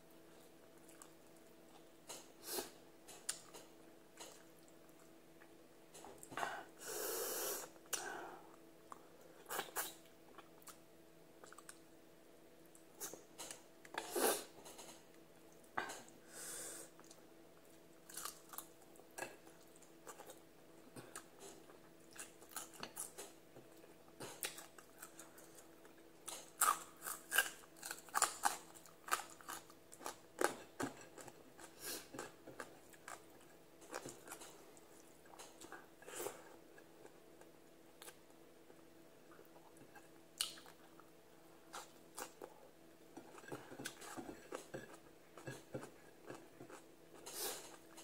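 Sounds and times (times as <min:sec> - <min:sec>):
faint steady hum: 0:00.0 - 0:48.0
chewing and crunching food: 0:00.3 - 0:02.3, 0:11.4 - 0:11.9, 0:17.0 - 0:48.0.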